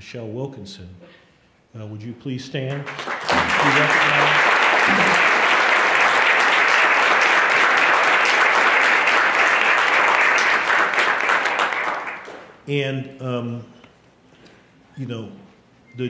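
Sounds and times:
audience applauding: 2.7s - 12.6s.

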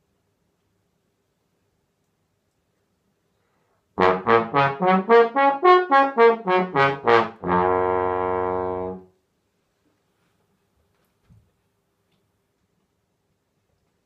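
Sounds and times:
trombone playing: 4.0s - 9.1s.

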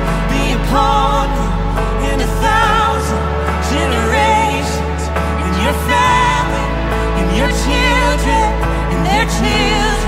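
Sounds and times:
acoustic guitar: 0.0s - 10.0s
person singing with vibrato: 0.0s - 10.0s
worship song on piano: 0.0s - 10.0s.

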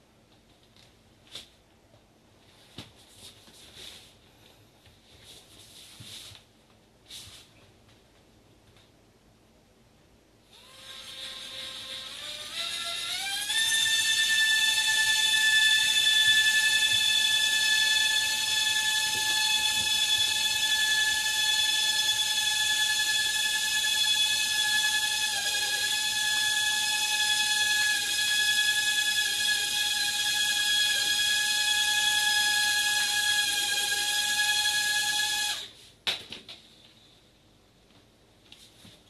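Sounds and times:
small rotor motor whining: 10.5s - 35.7s.

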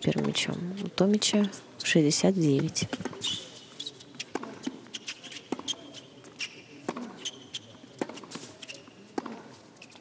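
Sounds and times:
tennis ball bouncing: 0.1s - 0.4s, 2.9s - 3.3s, 4.2s - 5.8s, 6.8s - 7.3s, 8.0s - 8.4s, 9.1s - 10.0s
sneakers squeaking on court: 2.9s - 10.0s
racket striking tennis ball: 4.3s - 5.8s, 6.8s - 7.3s, 8.0s - 9.6s.

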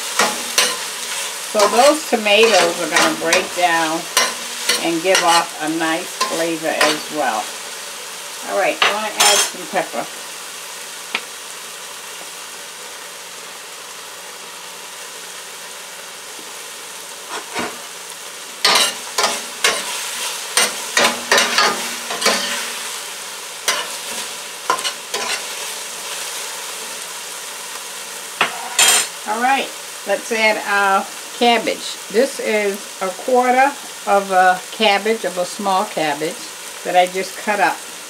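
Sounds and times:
vegetables sizzling in a skillet: 0.0s - 38.0s
spoon scraping and clinking on pan: 0.1s - 5.5s, 6.2s - 7.2s, 8.8s - 9.6s, 18.6s - 22.9s, 23.6s - 25.5s, 28.4s - 29.1s.

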